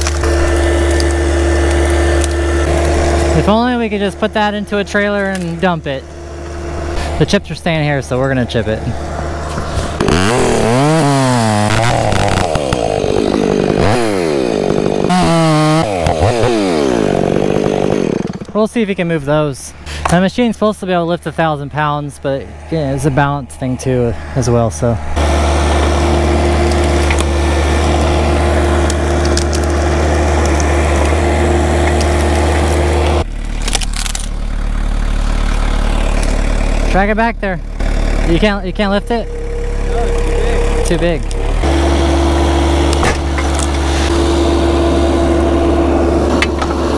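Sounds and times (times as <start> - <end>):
wood and bark cracking: 0.0 - 7.1, 9.0 - 18.6, 25.2 - 36.9, 37.8 - 46.9
chainsaw revving and cutting wood: 0.0 - 19.0, 24.2 - 46.9
skid steer engine running hard: 0.0 - 19.0, 21.3 - 46.9.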